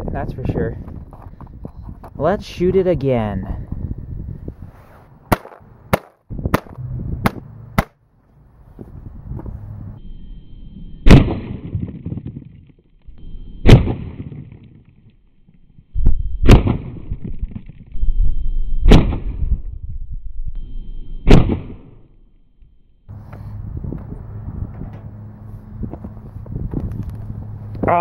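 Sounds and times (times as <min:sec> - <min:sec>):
air rifle shots: 0:05.3 - 0:08.0, 0:11.0 - 0:12.1, 0:13.6 - 0:14.4, 0:16.4 - 0:17.2, 0:18.9 - 0:19.4, 0:21.2 - 0:22.0.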